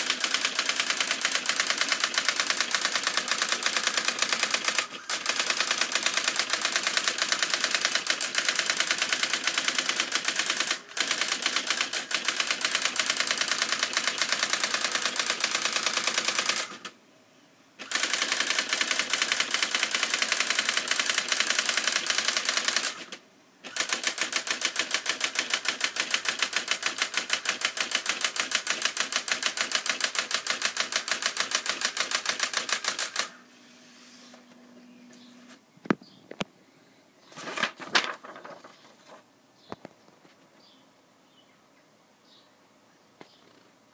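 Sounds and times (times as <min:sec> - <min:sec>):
daisywheel printer clicking: 0:00.0 - 0:16.9, 0:17.8 - 0:33.4.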